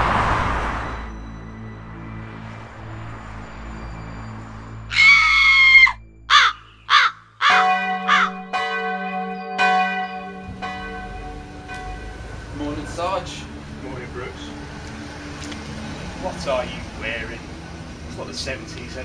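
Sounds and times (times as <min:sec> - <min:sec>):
crow cawing: 0:04.9 - 0:08.5
church bell tolling: 0:07.5 - 0:13.6.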